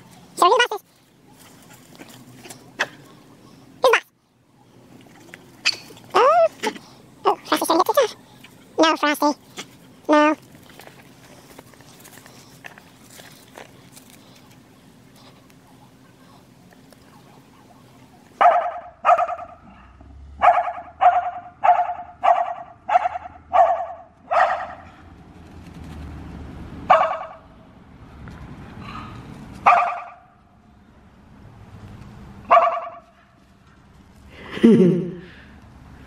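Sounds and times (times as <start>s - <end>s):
dog barking: 18.4s - 24.9s, 26.9s - 27.4s, 29.6s - 30.3s, 32.5s - 33.4s.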